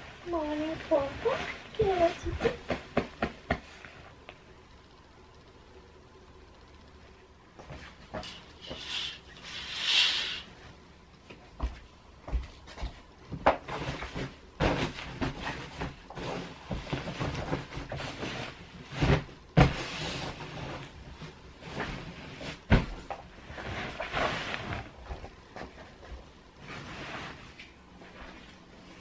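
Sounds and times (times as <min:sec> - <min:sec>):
duvet and pillows rustling: 0:00.0 - 0:04.3, 0:07.4 - 0:29.0
pillows thumping: 0:00.7 - 0:03.8.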